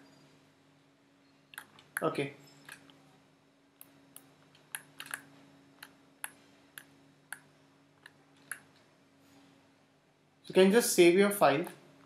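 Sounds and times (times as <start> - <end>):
faint low hum: 0.0 - 12.0
mouse and keyboard clicks: 3.8 - 8.8.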